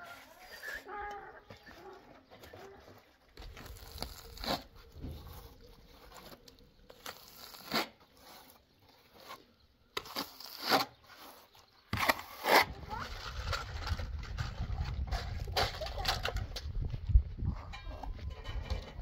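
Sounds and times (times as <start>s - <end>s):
trowel scraping wet mortar: 3.4s - 15.9s.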